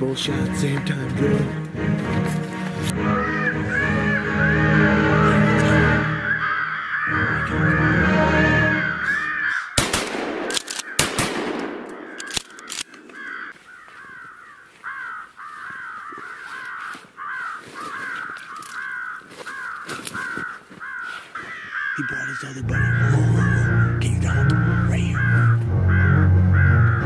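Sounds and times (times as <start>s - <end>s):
crows cawing: 2.9s - 27.0s
sharp cracks: 9.7s - 13.5s.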